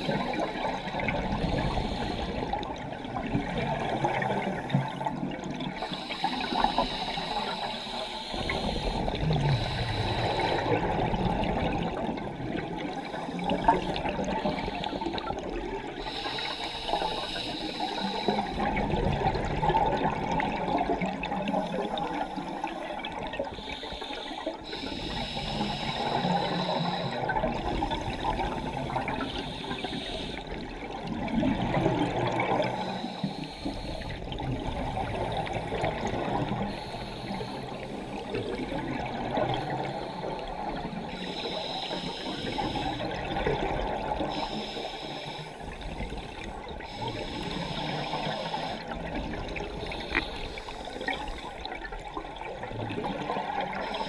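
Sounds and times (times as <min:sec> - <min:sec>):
regulator breaths underwater: 0:00.0 - 0:02.8, 0:05.7 - 0:12.0, 0:12.8 - 0:20.6, 0:21.2 - 0:31.0, 0:31.7 - 0:51.7, 0:53.1 - 0:54.0
gurgling rush of bubbles: 0:00.0 - 0:06.7, 0:08.4 - 0:16.1, 0:17.8 - 0:23.5, 0:25.6 - 0:33.1, 0:33.8 - 0:41.2, 0:42.3 - 0:44.5.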